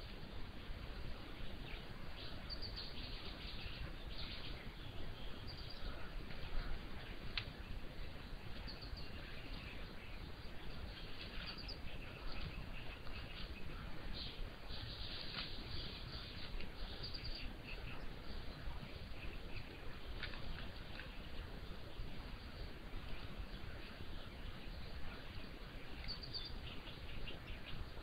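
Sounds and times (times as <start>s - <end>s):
steady low hiss: 0.0s - 28.0s
bird chirps: 1.6s - 20.4s, 24.1s - 28.0s.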